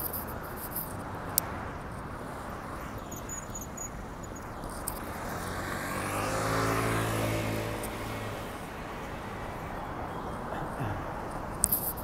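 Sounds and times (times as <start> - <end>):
street noise: 0.0 - 12.0
vehicle engine driving past: 5.3 - 8.6.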